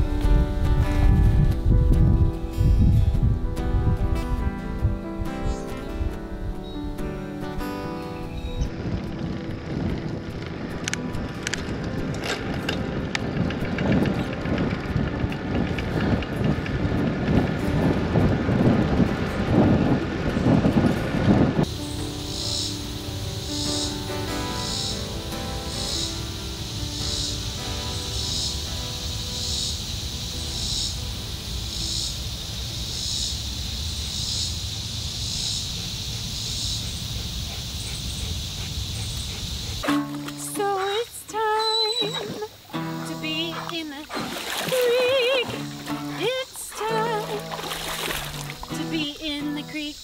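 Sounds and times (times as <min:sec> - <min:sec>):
wind buffeting microphone: 0:00.0 - 0:25.4
insect pulsing call: 0:21.7 - 0:50.0.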